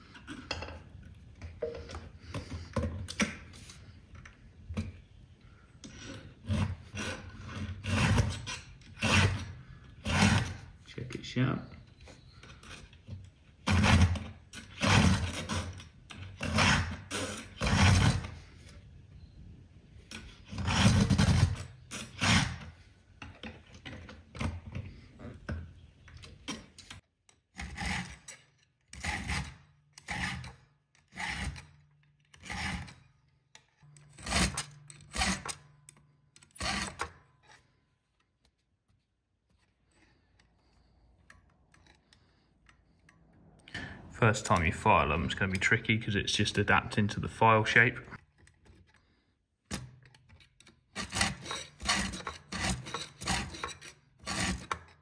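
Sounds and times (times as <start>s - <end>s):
file rasping on saw chain: 6.4s - 10.7s, 13.6s - 18.4s, 27.6s - 31.8s, 32.4s - 33.0s, 34.2s - 35.6s, 36.6s - 37.6s, 50.9s - 55.0s.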